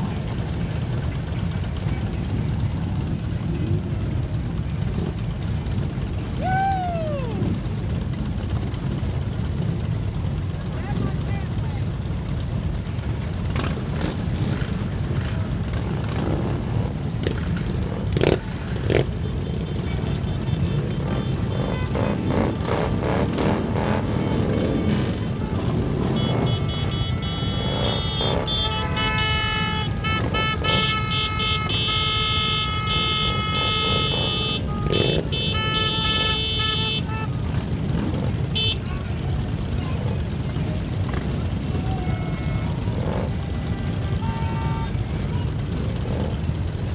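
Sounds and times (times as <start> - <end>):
motorcycles idling: 0.0 - 46.9.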